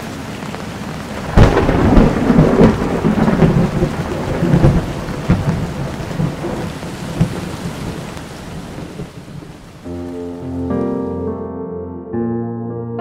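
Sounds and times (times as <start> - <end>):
thunder rumbling: 0.0 - 9.8
steady rain: 0.0 - 11.3.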